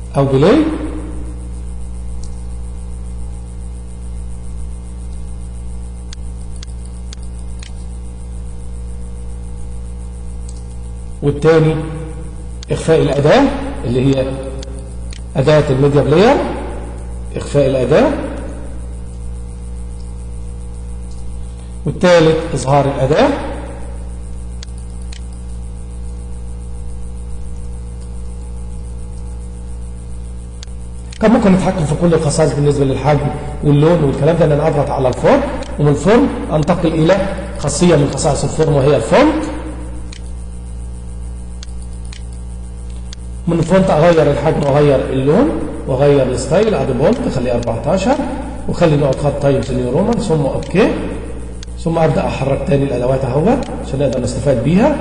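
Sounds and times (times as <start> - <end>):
electrical mains hum: 0.0 - 55.0
sharp clicks: 6.1 - 8.0, 10.4 - 10.9, 14.1 - 15.4, 21.0 - 21.4, 24.5 - 26.2, 30.5 - 31.2, 40.0 - 40.4, 41.5 - 43.4, 49.0 - 50.8, 51.5 - 51.8.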